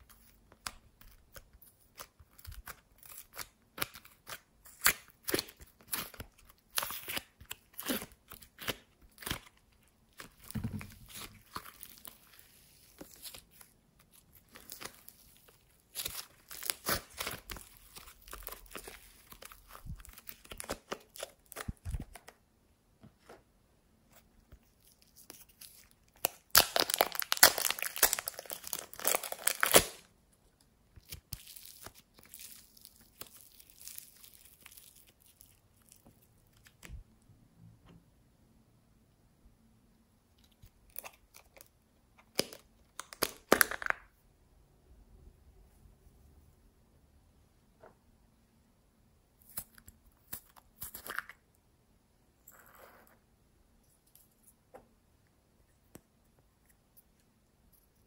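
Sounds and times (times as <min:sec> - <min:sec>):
modelling clay crackling and tearing: 0:00.0 - 0:22.3, 0:24.6 - 0:30.0, 0:31.0 - 0:36.9.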